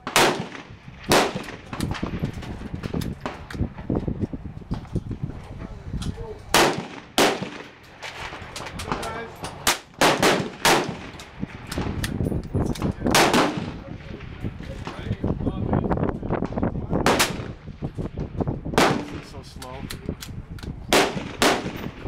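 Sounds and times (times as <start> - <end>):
loud gunshots with ringing tail: 0.0 - 2.2, 6.5 - 7.8, 9.6 - 11.2, 13.1 - 14.2, 17.0 - 17.6, 18.7 - 19.4, 20.9 - 22.0.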